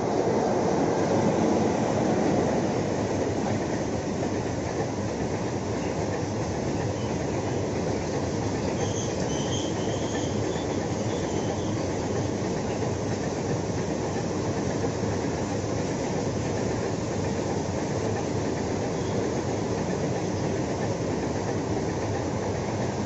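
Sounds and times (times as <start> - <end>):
freight train wheels clattering: 2.0 - 23.0
high wheel squeal: 8.6 - 12.0.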